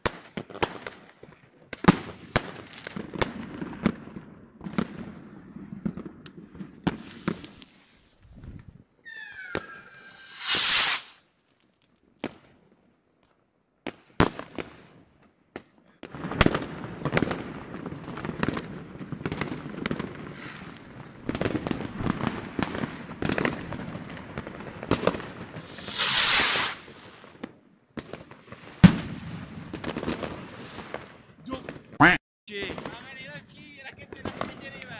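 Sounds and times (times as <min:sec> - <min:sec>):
fireworks crackling and banging: 0:00.0 - 0:12.5, 0:13.8 - 0:34.9
firework rocket whoosh: 0:06.8 - 0:11.2, 0:24.8 - 0:27.0
firework rocket whistle: 0:09.0 - 0:11.2, 0:25.6 - 0:26.9.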